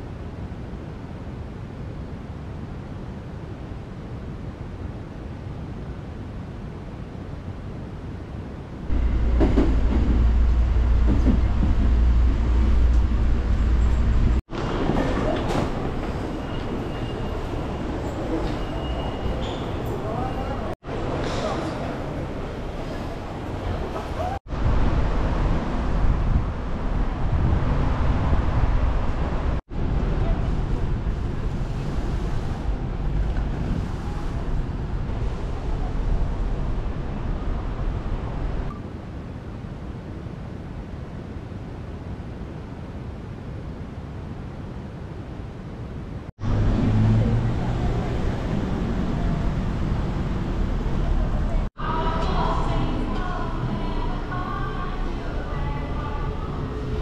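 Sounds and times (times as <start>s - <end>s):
steady outdoor hiss: 0.0s - 14.9s
train cabin low rumble: 8.3s - 39.3s, 46.4s - 57.0s.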